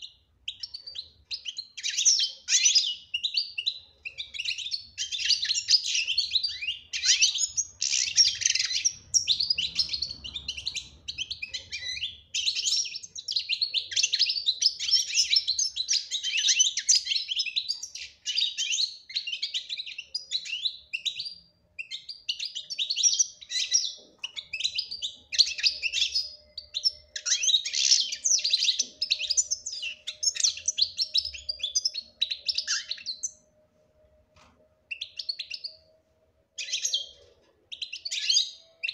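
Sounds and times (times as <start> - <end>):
goldfinch twittering and trilling: 0.5 - 33.4, 36.6 - 38.9.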